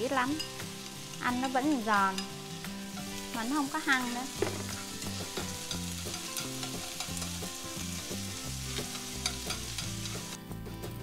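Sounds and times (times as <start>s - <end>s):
onions sizzling in hot oil: 0.0s - 10.4s
chopsticks clicking against a pan: 5.3s - 7.4s, 8.8s - 10.2s.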